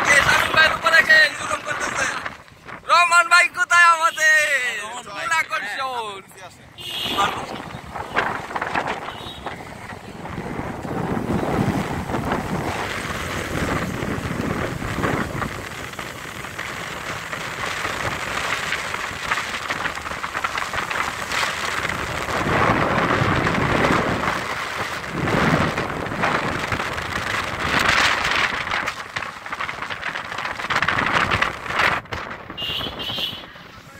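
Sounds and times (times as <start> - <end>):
wind buffeting microphone: 0.0 - 3.2, 6.8 - 33.9
jeep road and engine noise: 0.0 - 33.9.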